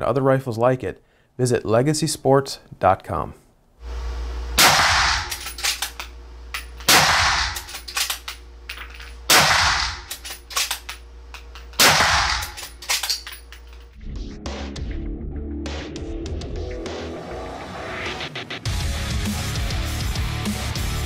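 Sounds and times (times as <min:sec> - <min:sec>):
rifle shots echoing indoors: 0:04.6 - 0:05.9, 0:06.9 - 0:08.2, 0:09.3 - 0:10.8, 0:11.8 - 0:12.6
music: 0:13.9 - 0:21.0.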